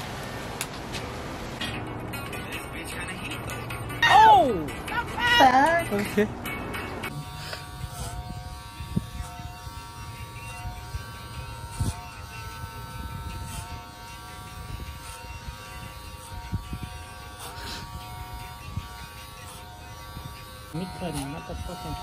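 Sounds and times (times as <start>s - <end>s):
electric hair clippers buzzing: 4.7s - 22.0s.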